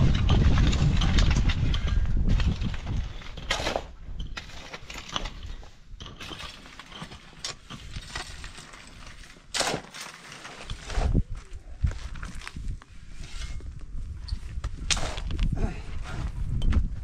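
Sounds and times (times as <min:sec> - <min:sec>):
pickaxe striking stony soil: 0:09.2 - 0:11.1, 0:14.6 - 0:15.5.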